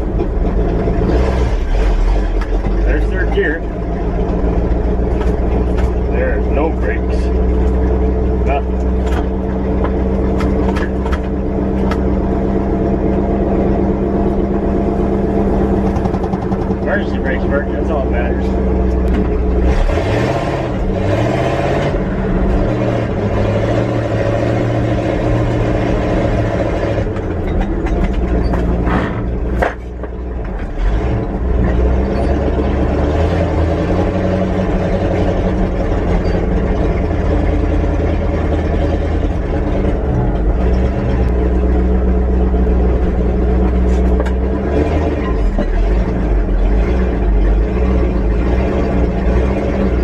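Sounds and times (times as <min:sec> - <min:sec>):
truck engine while driving: 0:00.0 - 0:50.0.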